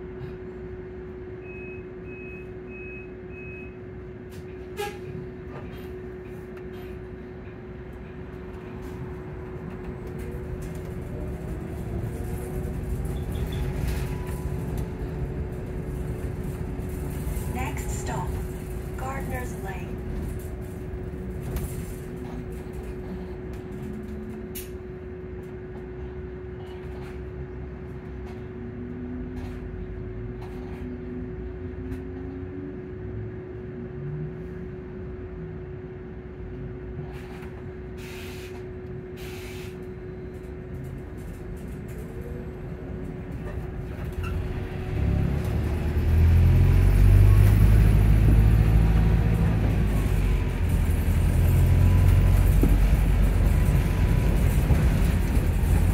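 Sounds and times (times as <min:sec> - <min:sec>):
diesel engine throbbing: 0:07.2 - 0:24.6, 0:41.2 - 0:55.9.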